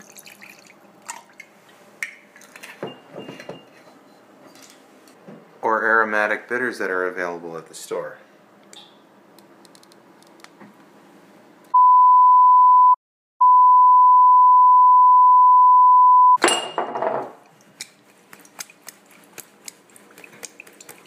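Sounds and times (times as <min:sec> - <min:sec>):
electronic beep tone: 0:11.8 - 0:16.4.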